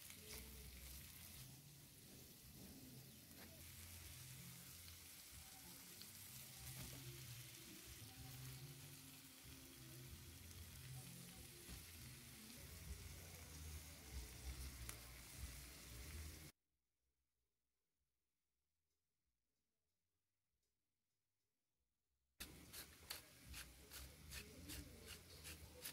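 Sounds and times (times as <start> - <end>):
food sizzling in a pan: 0.0 - 16.6.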